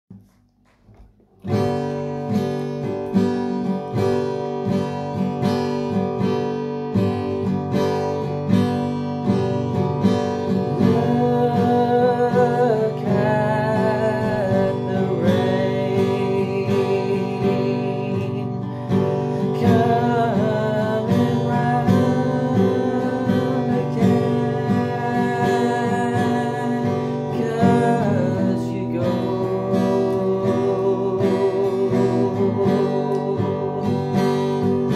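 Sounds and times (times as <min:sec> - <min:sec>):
acoustic guitar strumming: 0:00.2 - 0:34.9
man singing: 0:10.4 - 0:34.9.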